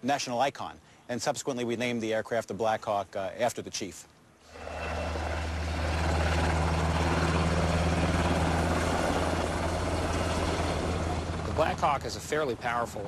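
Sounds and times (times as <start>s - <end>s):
turbine engine hiss: 4.5s - 12.3s
helicopter rotor drone: 4.5s - 13.0s.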